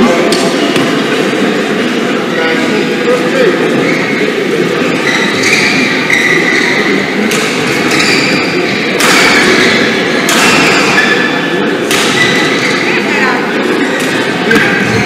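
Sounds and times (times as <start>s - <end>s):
hubbub in hall: 0.0s - 15.0s
shoe squeaks: 5.0s - 7.1s, 7.8s - 8.8s, 12.1s - 13.0s.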